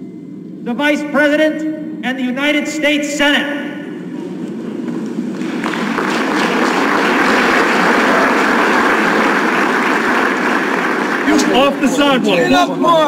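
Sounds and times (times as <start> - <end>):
roomful of people clapping: 4.8 - 12.4.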